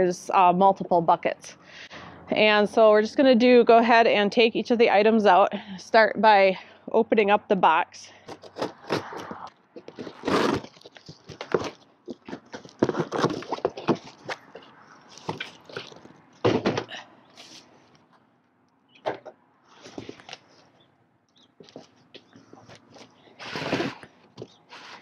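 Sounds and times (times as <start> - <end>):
cardboard flaps scraping: 8.3 - 16.7, 22.7 - 24.1.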